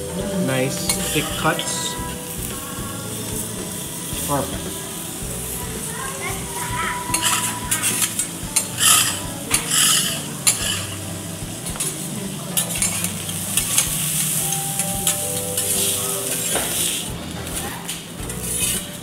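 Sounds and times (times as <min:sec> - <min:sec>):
food sizzling: 0:00.0 - 0:19.0
metal spatulas scraping on griddle: 0:00.2 - 0:02.4, 0:07.0 - 0:11.0.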